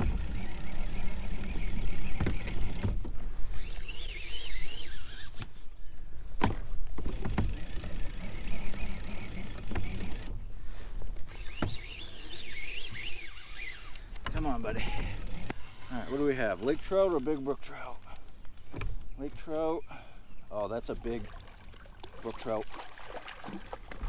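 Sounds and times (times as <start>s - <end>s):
fishing reel clicks: 0.0s - 2.9s, 3.5s - 5.6s, 7.1s - 10.4s, 11.3s - 19.8s
fishing reel whirring: 0.0s - 5.7s, 7.0s - 10.4s, 11.2s - 19.8s.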